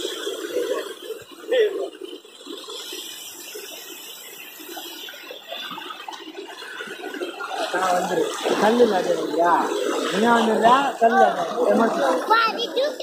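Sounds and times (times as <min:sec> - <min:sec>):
water rushing over dam wall: 0:02.9 - 0:13.0.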